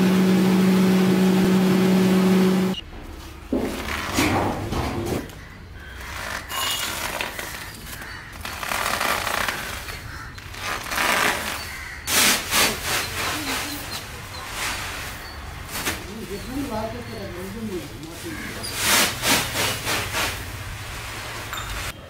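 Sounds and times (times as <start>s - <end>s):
plastic sacks ripping and crinkling: 6.0s - 16.8s, 18.2s - 21.6s.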